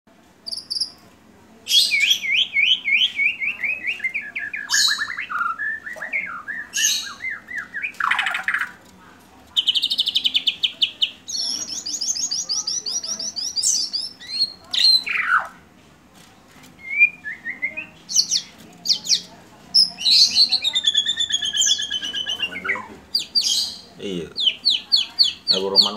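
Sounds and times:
songbird whistling and trilling: 1.7 - 8.7, 11.3 - 15.5, 16.8 - 19.2, 19.8 - 23.8.

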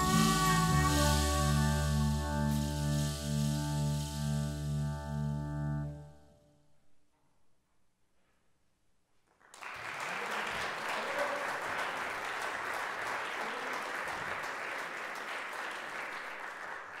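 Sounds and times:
audience applause: 9.5 - 17.0.

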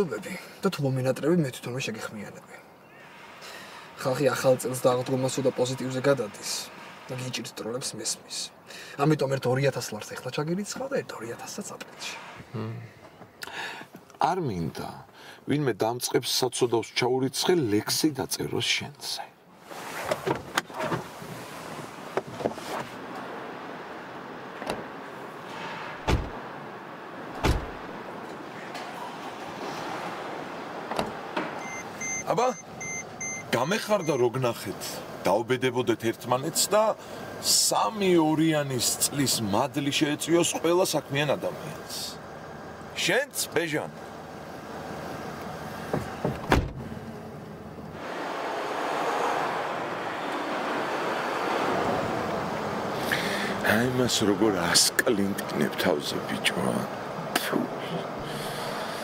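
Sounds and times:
car doors slamming: 24.5 - 26.5, 27.3 - 28.0, 30.8 - 31.7, 45.8 - 47.0
car door thud: 26.0 - 26.4, 27.4 - 27.8, 45.9 - 46.9.

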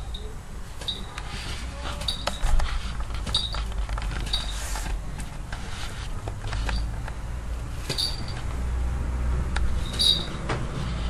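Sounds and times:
small bell clinking: 0.1 - 1.2, 2.0 - 2.5, 7.9 - 8.5, 9.8 - 10.4.

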